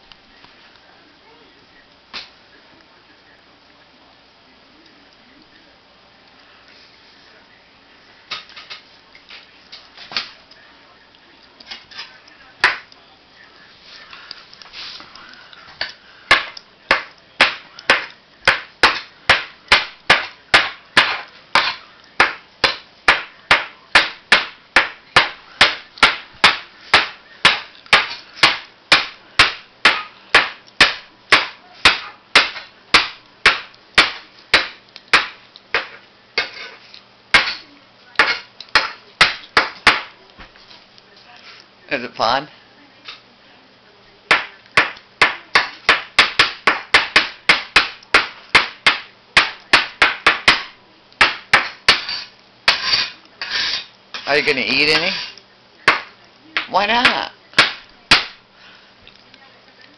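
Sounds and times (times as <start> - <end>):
knife chopping mushrooms: 15.8 - 36.6, 37.4 - 37.6, 38.2 - 40.2, 44.3 - 58.4.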